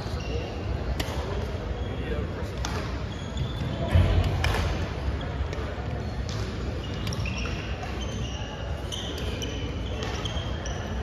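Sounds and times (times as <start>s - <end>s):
background chatter: 0.0s - 11.0s
racket hitting shuttlecock: 3.9s - 4.9s.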